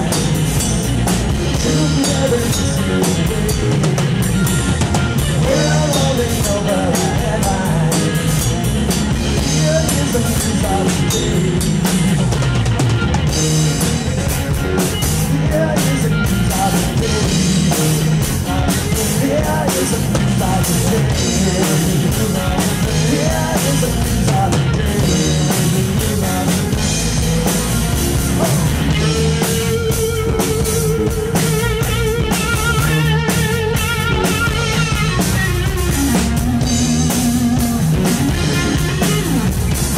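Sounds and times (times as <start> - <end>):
man singing lead vocals: 0.0 - 4.2, 5.2 - 12.0, 15.0 - 35.2
drum kit: 0.0 - 39.9
electric guitar: 0.0 - 39.9.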